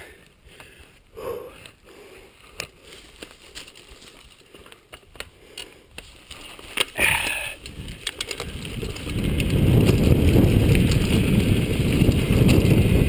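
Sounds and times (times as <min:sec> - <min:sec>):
rider breath or grunt: 0:00.0 - 0:03.1, 0:04.4 - 0:08.6
bike tyres crackling over leaves: 0:00.0 - 0:13.0.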